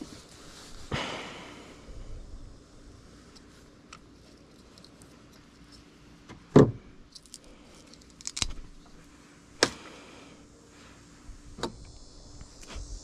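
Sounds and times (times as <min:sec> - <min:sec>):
tools and wire clicking: 0:03.3 - 0:05.9, 0:07.1 - 0:09.0.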